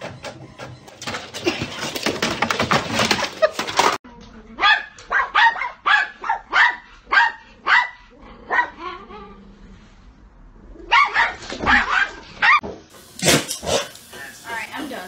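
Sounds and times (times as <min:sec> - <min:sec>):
dog barking: 0:04.6 - 0:08.8, 0:10.9 - 0:12.6.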